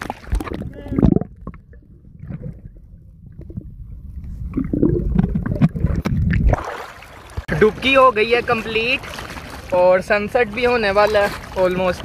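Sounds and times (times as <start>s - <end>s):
underwater bubbling: 0.0s - 7.5s
underwater rumble of moving water: 0.0s - 12.0s.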